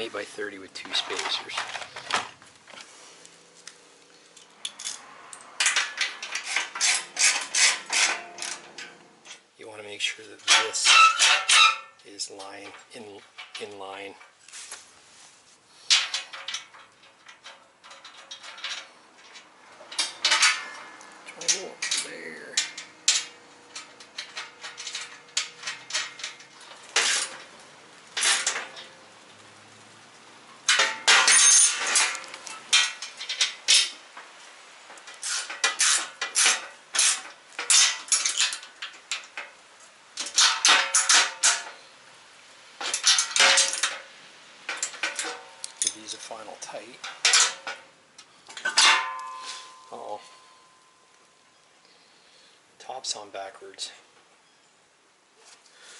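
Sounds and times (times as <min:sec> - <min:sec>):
metal bolts clinking: 0:04.3 - 0:09.4, 0:10.3 - 0:14.4, 0:15.9 - 0:27.5, 0:28.2 - 0:29.0, 0:30.6 - 0:34.3, 0:35.0 - 0:39.6, 0:40.2 - 0:41.8, 0:42.8 - 0:50.8
metal clinks of nuts and washers: 0:30.7 - 0:34.0, 0:44.7 - 0:46.4.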